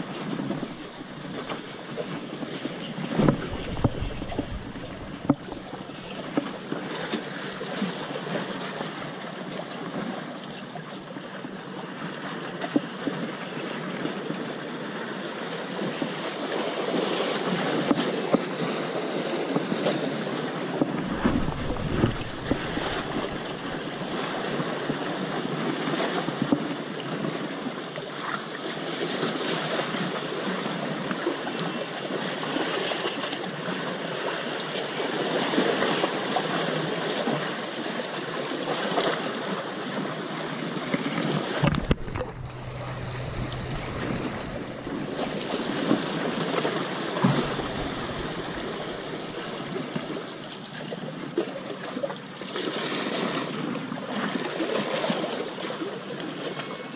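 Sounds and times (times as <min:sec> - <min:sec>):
wind on microphone: 0:00.0 - 0:07.8, 0:20.8 - 0:25.3, 0:41.4 - 0:50.6
waves splashing against rocks: 0:00.0 - 0:10.4, 0:15.3 - 0:56.6.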